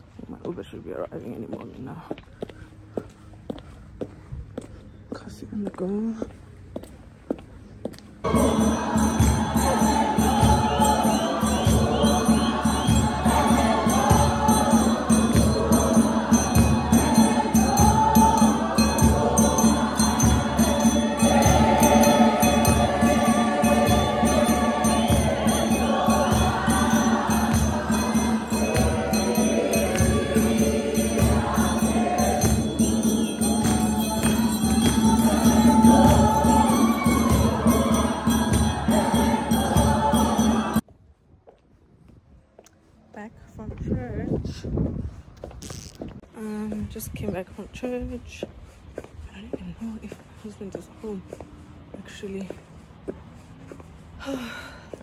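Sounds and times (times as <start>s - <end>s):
congregation singing a hymn: 8.2s - 40.8s
rhythmic hand-clapping: 8.3s - 40.8s.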